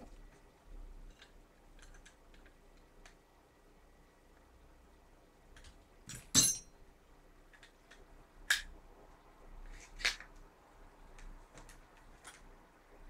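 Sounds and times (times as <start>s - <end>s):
metal parts clicking and clinking: 5.6s - 6.8s.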